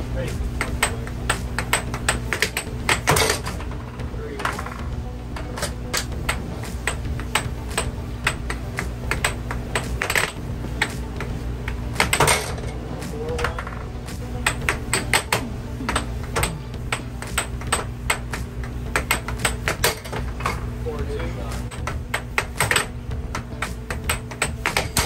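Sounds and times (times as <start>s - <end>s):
air blower hum: 0.0s - 25.0s
air hockey puck clacking: 0.6s - 25.0s.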